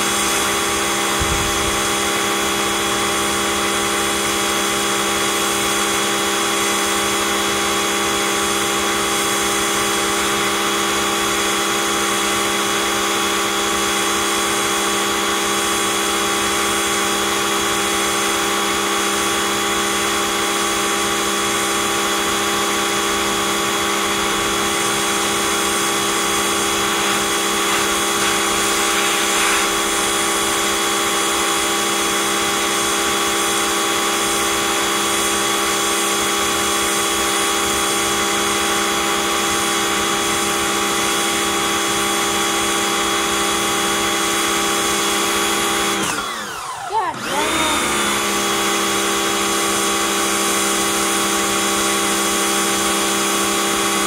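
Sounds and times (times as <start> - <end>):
water spray hissing on concrete: 0.0 - 5.8, 24.4 - 34.5
pressure washer motor hum: 0.0 - 54.0.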